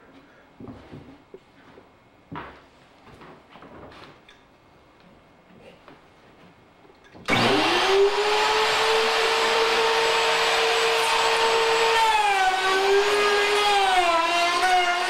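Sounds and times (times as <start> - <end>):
electric router whining: 7.3 - 15.0
router bit cutting wood: 7.3 - 15.0.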